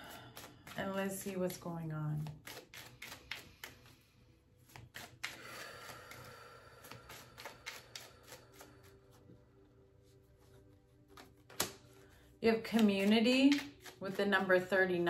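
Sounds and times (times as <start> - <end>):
cards being shuffled: 0.1 - 9.2, 10.0 - 15.0.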